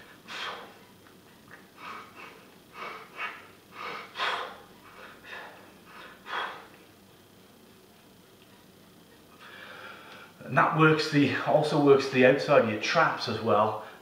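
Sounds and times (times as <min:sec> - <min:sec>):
man blowing forceful breaths: 0:00.0 - 0:00.9, 0:01.6 - 0:06.9.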